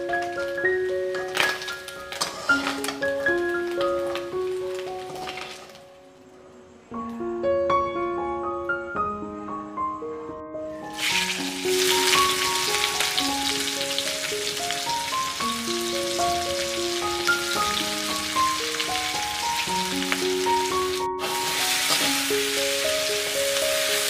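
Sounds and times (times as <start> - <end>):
oil sizzling in a wok: 0.0 - 6.0, 10.9 - 24.0
gentle piano music: 0.0 - 24.0.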